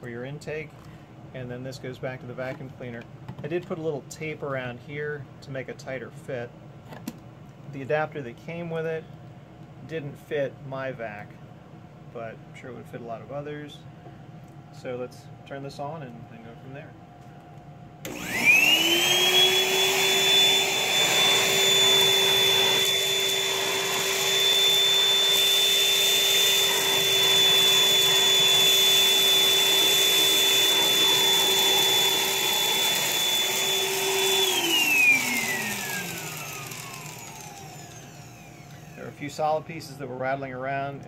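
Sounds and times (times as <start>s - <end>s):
vacuum motor whine: 18.0s - 39.6s.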